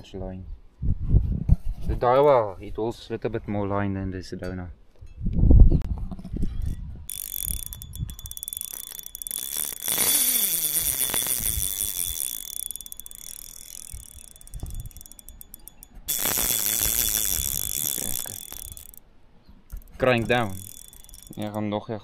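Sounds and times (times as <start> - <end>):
fishing reel drag buzzing: 6.4 - 19.0, 19.7 - 21.6.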